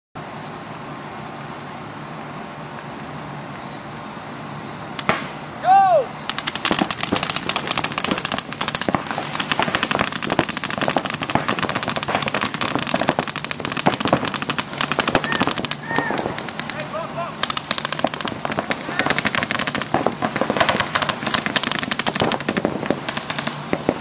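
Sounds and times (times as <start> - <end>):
rapid paintball marker pops: 6.3 - 24.0.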